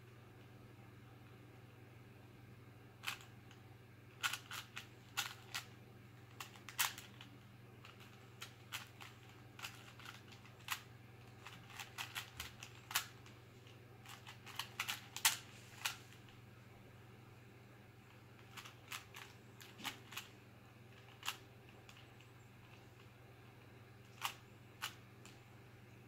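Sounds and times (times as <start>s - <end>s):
puzzle cube plastic clicks: 3.0s - 3.6s, 4.2s - 5.7s, 6.3s - 16.3s, 18.4s - 20.3s, 20.9s - 23.1s, 24.0s - 25.4s.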